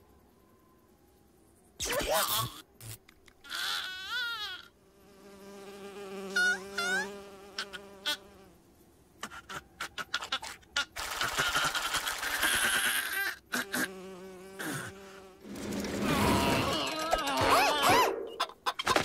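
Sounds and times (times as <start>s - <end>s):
cartoon fly buzzing: 1.8s - 8.5s, 10.8s - 18.5s
quick rising squeaks: 15.4s - 18.5s.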